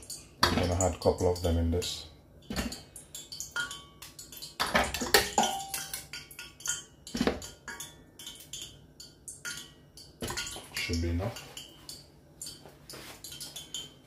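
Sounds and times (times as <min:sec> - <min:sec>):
metal utensil clinking on pot: 0:02.4 - 0:12.6.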